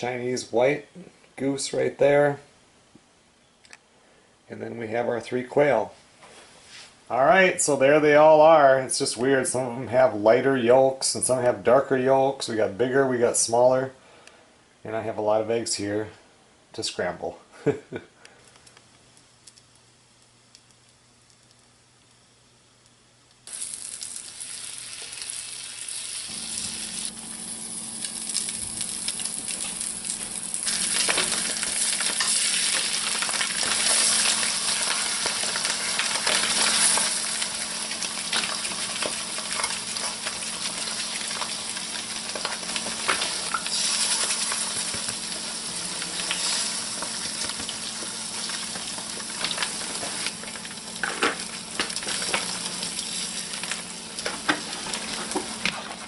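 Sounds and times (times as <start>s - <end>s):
eggs sizzling in frying pan: 19.1s - 55.9s.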